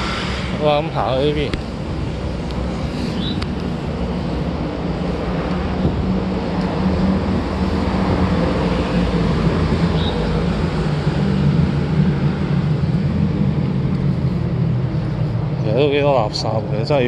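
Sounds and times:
low drone: 0.0s - 17.0s
road traffic rumble: 0.0s - 17.0s.

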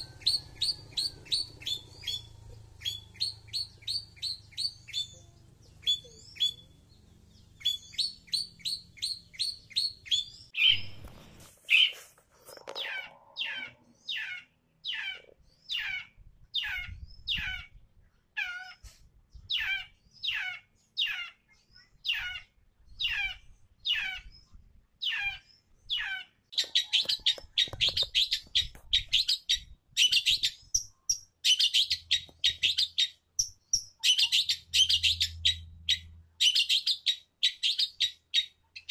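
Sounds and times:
shrike calling: 0.0s - 6.8s, 12.6s - 17.7s.

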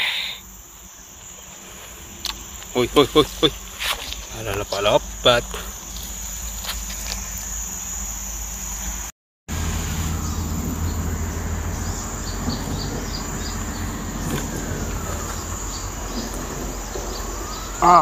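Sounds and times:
insects droning: 0.0s - 18.0s
low steady rumble: 9.5s - 18.0s.

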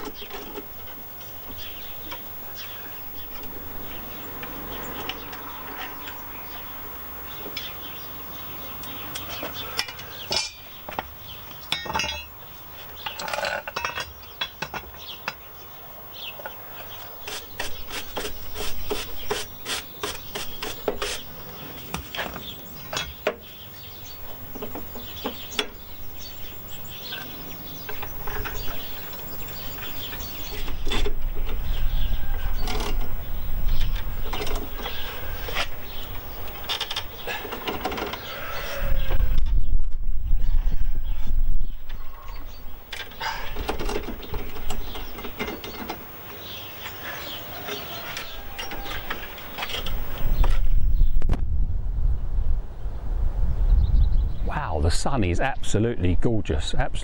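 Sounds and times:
metal tools clinking: 11.7s - 12.4s.

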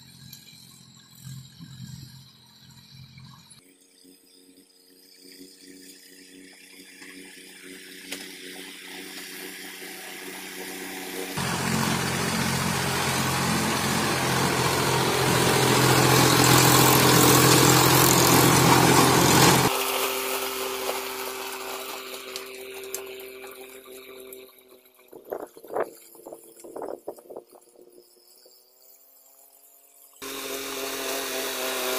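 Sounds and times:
hiss and clatter of tilling: 0.0s - 31.9s
tractor diesel engine under load: 11.4s - 19.8s, 30.2s - 31.9s.

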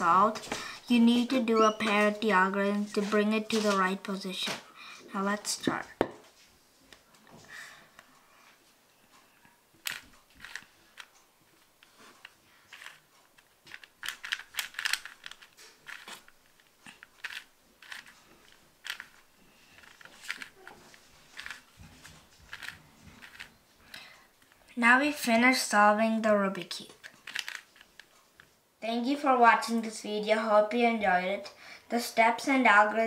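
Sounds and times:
puzzle cube plastic clicking: 9.8s - 11.1s, 11.8s - 24.6s, 26.6s - 28.5s.

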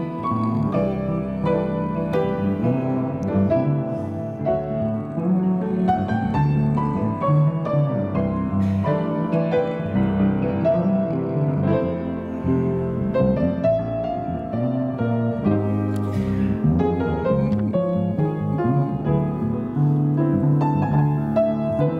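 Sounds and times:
low bass line: 0.0s - 21.9s
piano: 0.0s - 21.9s.

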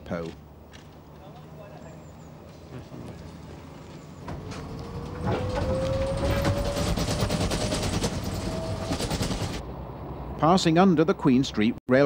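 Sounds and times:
dense clattering rattle: 4.3s - 9.6s.

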